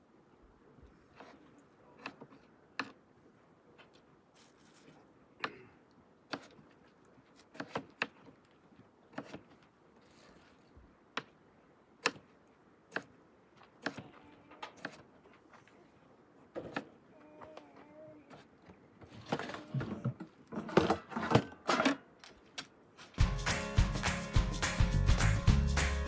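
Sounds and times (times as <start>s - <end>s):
knife chopping on cutting board: 7.5s - 8.2s.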